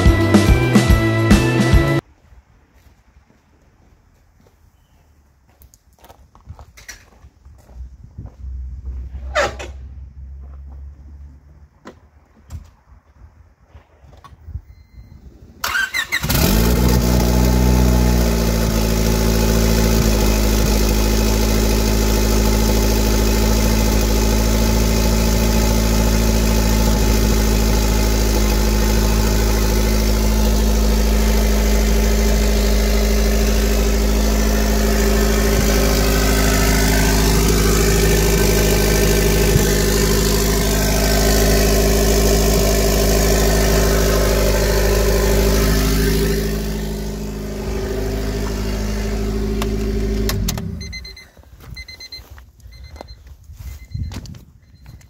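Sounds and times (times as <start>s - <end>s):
car engine starting and idling: 0.0s - 2.0s, 8.2s - 12.9s, 15.6s - 53.1s.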